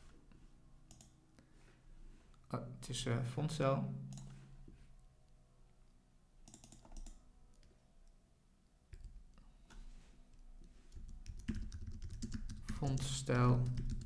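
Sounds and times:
computer keyboard typing: 0:06.4 - 0:07.7, 0:08.9 - 0:09.3, 0:10.9 - 0:14.0.

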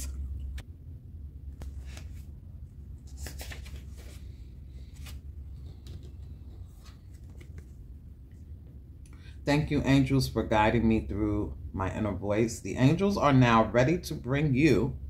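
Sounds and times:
steady low hum: 0:00.0 - 0:15.0
pages flipping: 0:01.5 - 0:02.3, 0:02.9 - 0:07.8.

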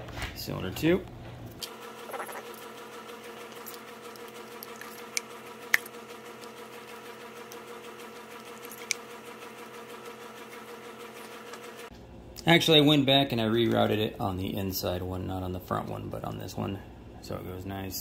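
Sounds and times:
steady background hum: 0:00.0 - 0:18.0.

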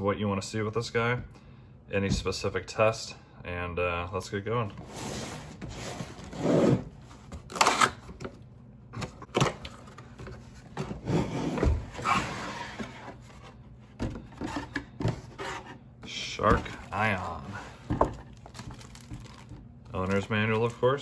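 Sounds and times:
cardboard box scraping and rustling: 0:04.8 - 0:06.9, 0:10.8 - 0:13.6.

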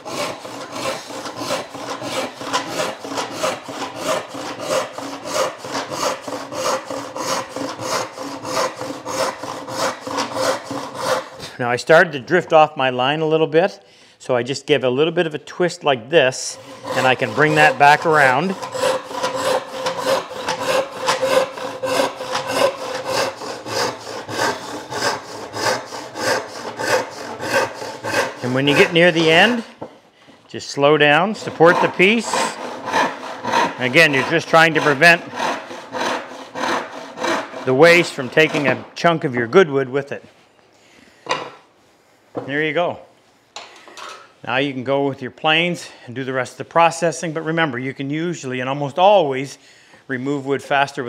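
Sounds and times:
hand saw cutting wood: 0:00.0 - 0:11.6, 0:16.4 - 0:29.9, 0:31.0 - 0:39.2.

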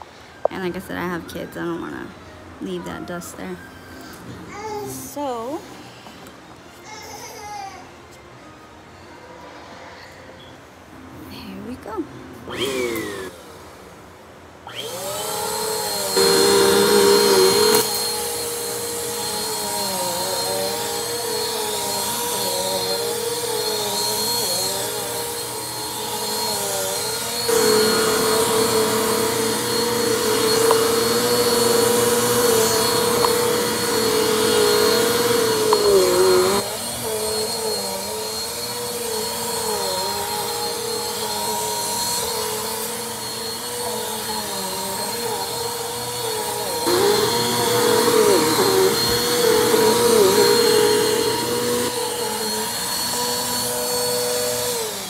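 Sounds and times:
vacuum cleaner motor humming: 0:12.5 - 0:13.4, 0:14.7 - 0:55.0.

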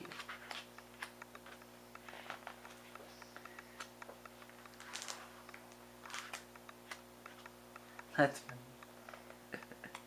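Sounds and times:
small ticks: 0:00.0 - 0:10.0
steady low hum: 0:00.0 - 0:10.0
paper rustling: 0:04.8 - 0:05.4.

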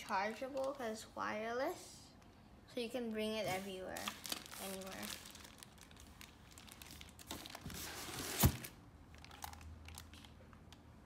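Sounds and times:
plastic bags crinkling: 0:00.0 - 0:01.1, 0:03.7 - 0:10.7.

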